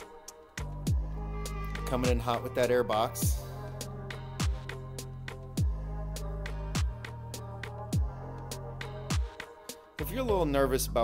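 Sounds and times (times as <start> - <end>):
sustained bass line: 0.6 - 9.2
deep kick drum: 0.9 - 1.1, 4.4 - 4.7, 5.6 - 5.9, 6.8 - 7.1, 8.0 - 8.2, 9.1 - 9.4.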